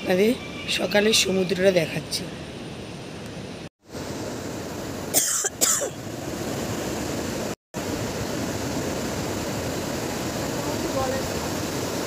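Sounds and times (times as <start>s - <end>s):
sea surf washing onto beach: 6.0s - 12.0s.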